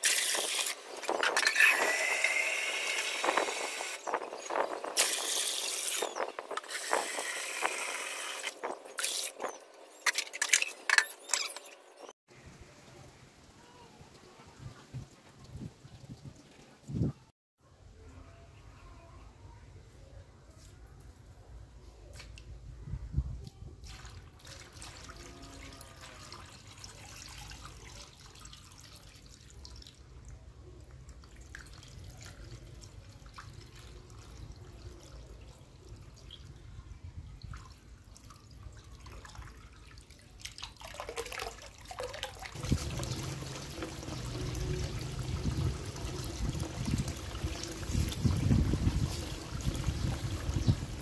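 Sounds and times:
water splashing into basin: 23.8 - 30.0, 37.5 - 51.0
water trickling into stone bowl: 37.4 - 51.0.

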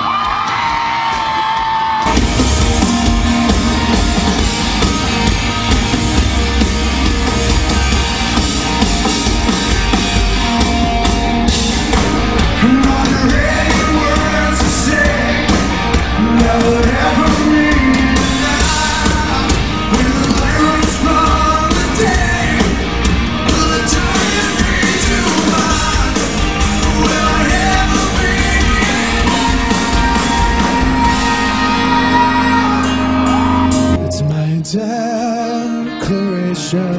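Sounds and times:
loud rock band music: 0.0 - 36.9
lead vocal singing: 12.1 - 36.9.

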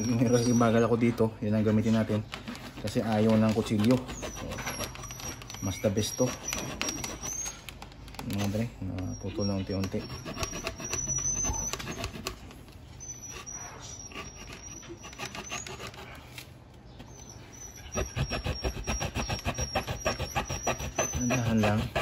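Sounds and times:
blade sawing through plastic: 1.7 - 7.8, 9.6 - 12.6, 14.0 - 16.4, 17.9 - 22.0.

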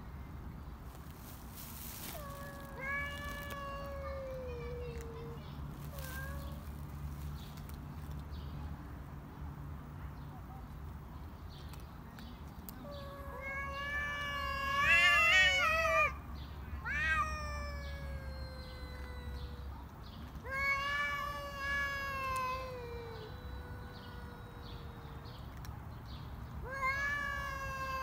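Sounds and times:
cats yowling: 2.0 - 6.7, 12.8 - 16.2, 16.8 - 25.4, 26.6 - 28.0.

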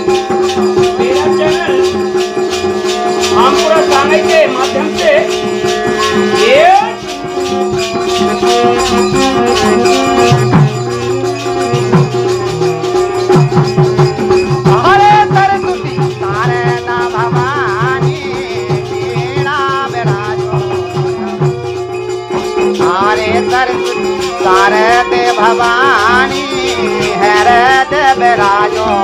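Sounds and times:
wavering lead melody: 0.0 - 29.0
drone note: 5.2 - 10.4.

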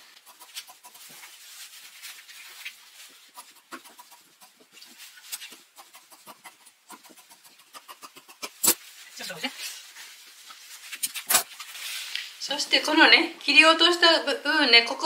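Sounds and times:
cloth rustling: 1.0 - 3.4, 8.6 - 12.4.

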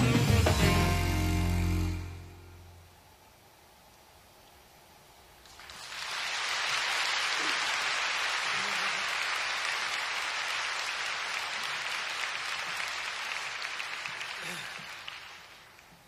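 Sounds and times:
large crowd applauding: 5.5 - 16.0.

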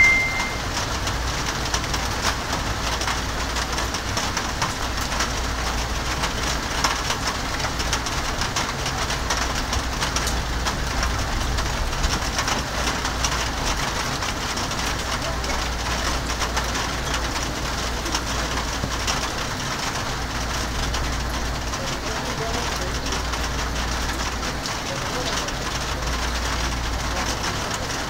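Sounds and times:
heavy rain: 0.0 - 28.0.

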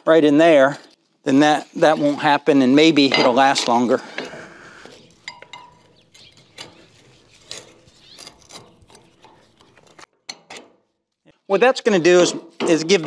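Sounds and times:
metal clinks and scrapes: 3.0 - 11.0.

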